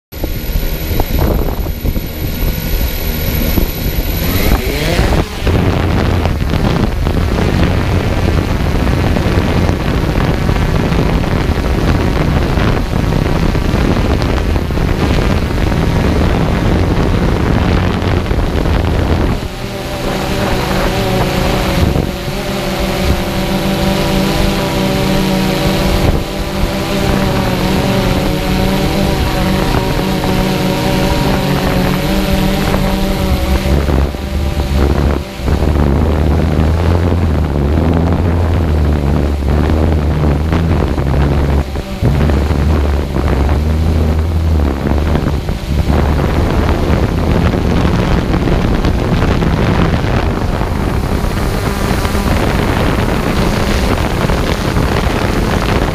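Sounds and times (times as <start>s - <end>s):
whine of steady tones: 0.1s - 55.9s
wind noise on microphone: 0.1s - 55.9s
quadcopter motors and propellers: 0.2s - 55.9s.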